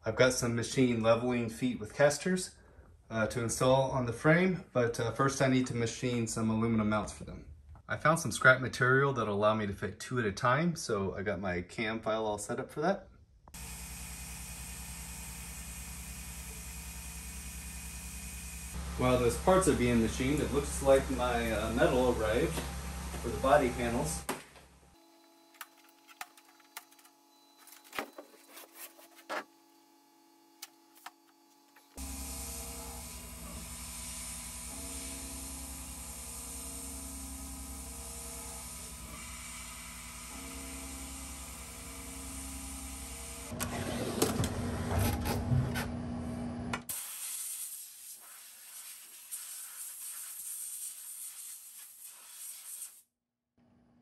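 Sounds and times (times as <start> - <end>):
machine motors humming: 13.6 - 46.9.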